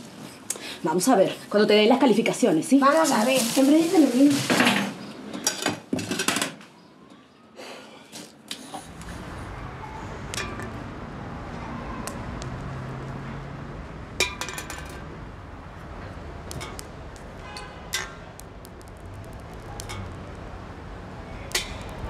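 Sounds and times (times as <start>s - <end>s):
street background hum: 6.6s - 22.0s.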